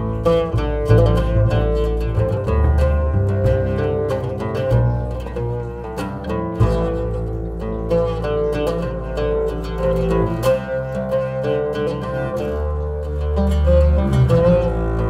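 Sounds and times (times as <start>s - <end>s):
bowed double bass: 0.0s - 15.0s
oud plucked: 0.0s - 15.0s.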